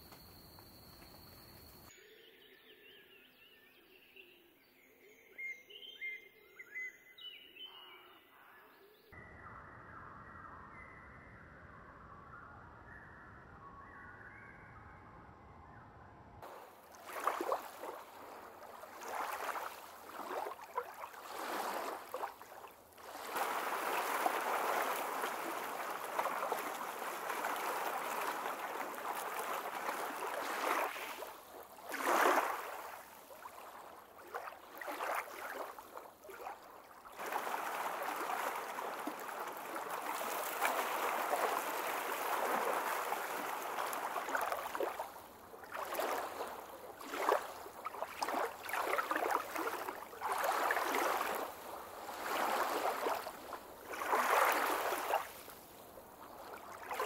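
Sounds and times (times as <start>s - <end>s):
flowing gurgling water: 16.4s - 57.0s.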